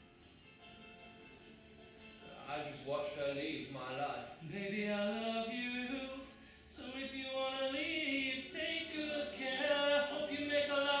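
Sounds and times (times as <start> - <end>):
person singing slow tune: 4.0 - 11.0.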